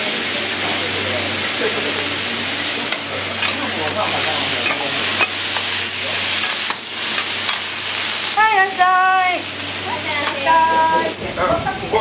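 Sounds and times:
food sizzling on a griddle: 0:00.0 - 0:12.0
metal spatulas scraping and tapping: 0:04.2 - 0:05.7.

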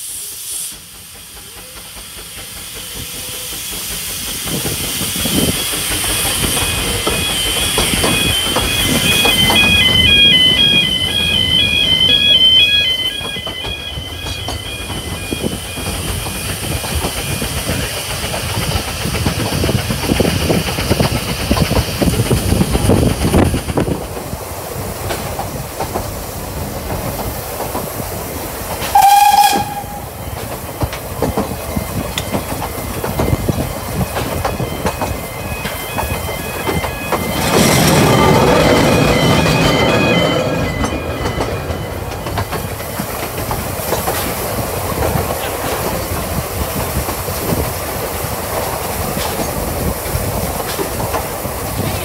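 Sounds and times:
steam hiss: 0:00.0 - 0:40.6
steam train rumble and clatter: 0:00.0 - 0:52.0
steam whistle: 0:05.2 - 0:16.5, 0:28.8 - 0:30.2
level-crossing alarm: 0:05.9 - 0:18.0, 0:29.0 - 0:43.5.

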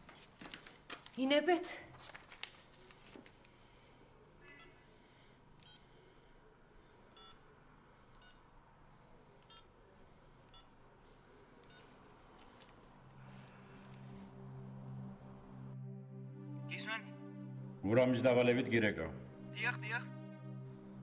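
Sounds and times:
phone keypad beeps: 0:07.2 - 0:07.4, 0:10.5 - 0:10.7.

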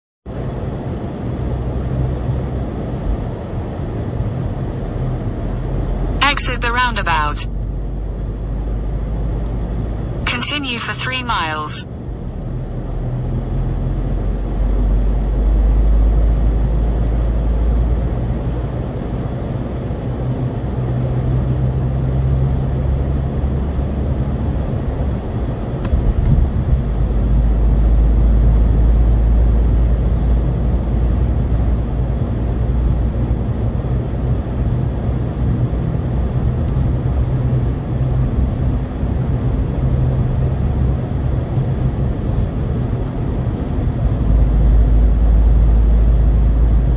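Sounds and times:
car engine and tyre rumble: 0:00.3 - 0:06.2, 0:07.5 - 0:10.3, 0:12.0 - 0:46.9.

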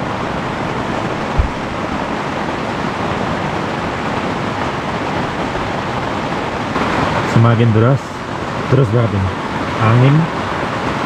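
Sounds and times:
heavy rain on a tent: 0:00.0 - 0:11.0
low thump: 0:01.2 - 0:02.1.

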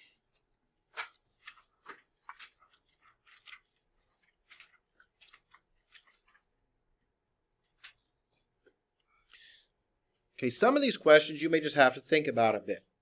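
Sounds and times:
paper rustling and tapping: 0:00.9 - 0:06.5.

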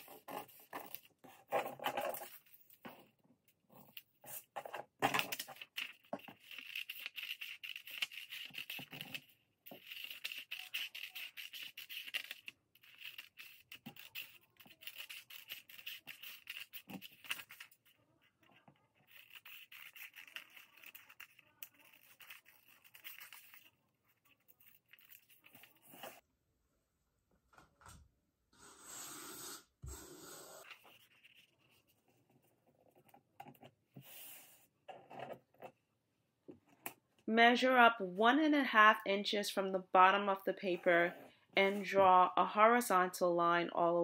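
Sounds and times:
scissors cutting paper: 0:00.0 - 0:02.6, 0:03.9 - 0:26.2.

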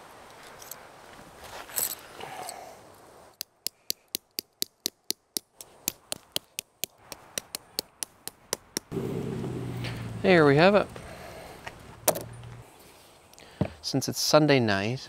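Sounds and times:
faint rustling and handling: 0:00.2 - 0:02.2.

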